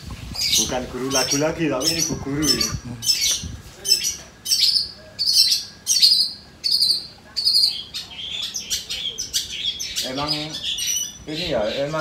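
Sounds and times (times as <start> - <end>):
bird harsh scratchy calls: 0.0 - 12.0
bird twittering: 0.0 - 12.0.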